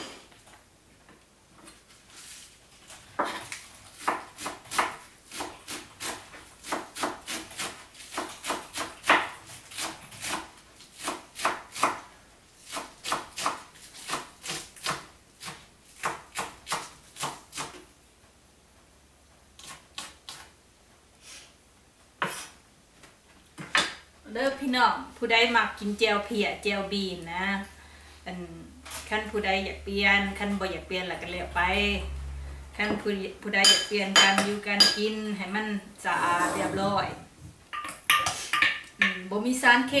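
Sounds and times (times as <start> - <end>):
knife chopping on wooden board: 4.0 - 12.0.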